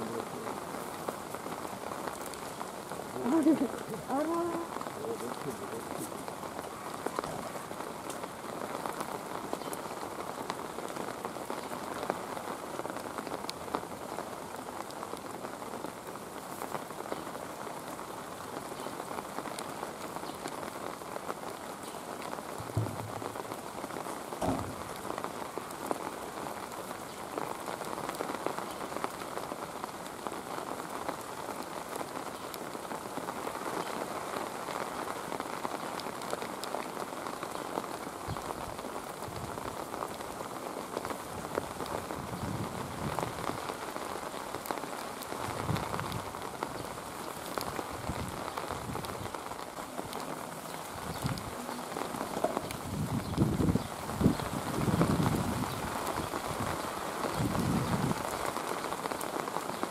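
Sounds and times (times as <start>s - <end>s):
steady rain falling: 0.0s - 59.9s
dull thuds: 22.6s - 23.4s, 24.4s - 25.0s.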